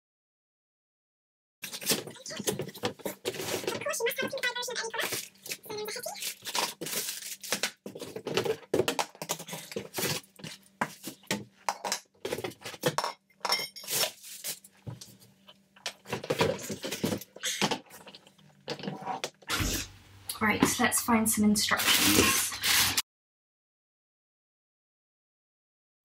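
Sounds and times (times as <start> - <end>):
plastic packaging rustling: 1.6 - 11.4, 13.9 - 15.1, 15.9 - 18.2.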